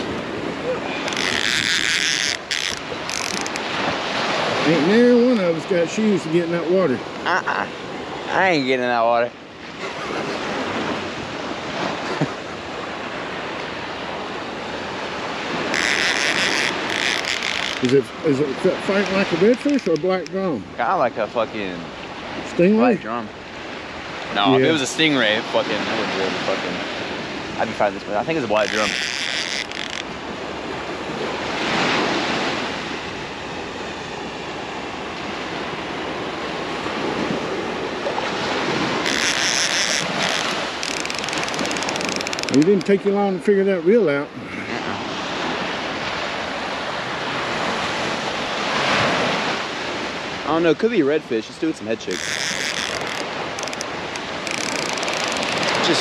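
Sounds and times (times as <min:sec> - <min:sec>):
wind buffeting microphone: 0:00.0 - 0:02.0
wind on microphone: 0:00.0 - 0:06.4, 0:09.5 - 0:20.8
surf washing onto beach: 0:00.0 - 0:56.0.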